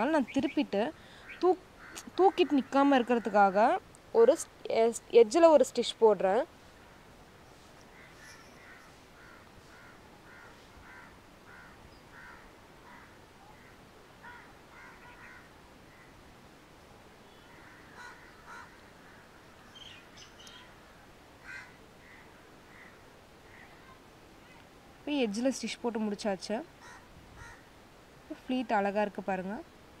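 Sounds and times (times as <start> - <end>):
faint bird calls: 0.3 - 3.4, 7.8 - 16.2, 17.2 - 24.6, 26.8 - 27.7.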